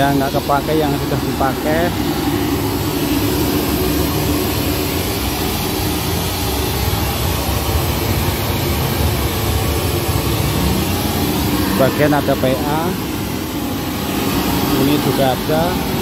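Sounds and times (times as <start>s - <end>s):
pink noise through speakers: 0.0s - 16.0s.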